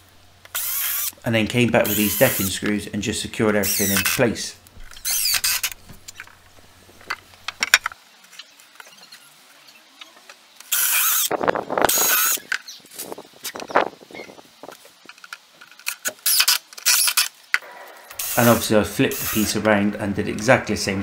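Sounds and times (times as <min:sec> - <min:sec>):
wood and screws clicking: 0:00.4 - 0:01.2, 0:03.6 - 0:09.0, 0:10.6 - 0:11.3, 0:14.7 - 0:18.6
cordless drill boring into wood: 0:00.5 - 0:01.2, 0:01.8 - 0:02.5, 0:03.6 - 0:04.2, 0:05.0 - 0:05.8, 0:10.7 - 0:11.3.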